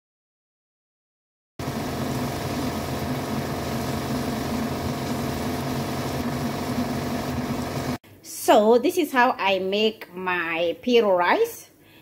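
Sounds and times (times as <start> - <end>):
low hum: 1.6 - 8.0.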